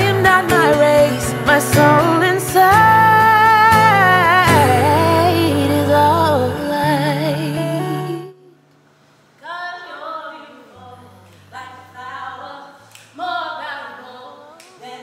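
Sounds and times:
voices singing unaccompanied: 0:00.0 - 0:08.3.

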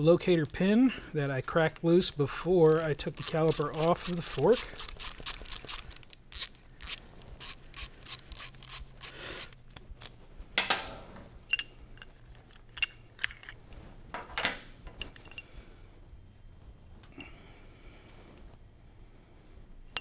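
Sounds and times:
socket ratchet clicking: 0:02.6 - 0:10.1.

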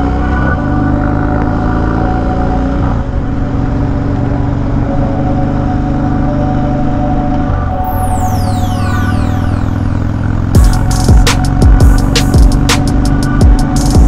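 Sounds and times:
long steady held tones: 0:06.0 - 0:12.6
motorcycle engine running: 0:09.7 - 0:14.0.

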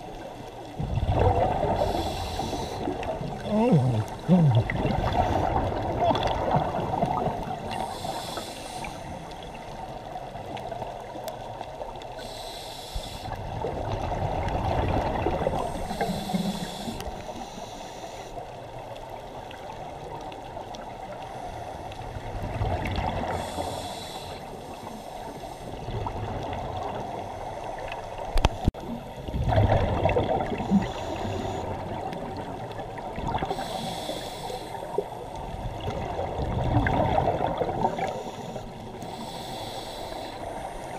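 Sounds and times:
low murky underwater rush: 0:00.0 - 0:40.9
regulator bubbles gurgling: 0:00.7 - 0:10.2, 0:13.4 - 0:17.2, 0:27.9 - 0:33.8, 0:34.9 - 0:39.0.

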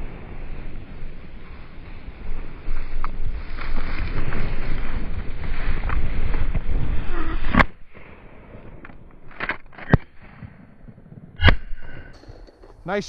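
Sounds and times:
wind buffeting microphone: 0:00.0 - 0:09.4.

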